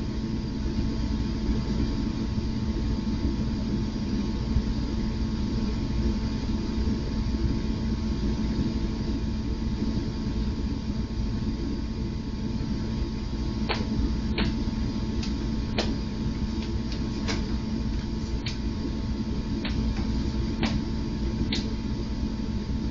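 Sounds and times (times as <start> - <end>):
electrical hum and hiss: 0.0 - 22.9.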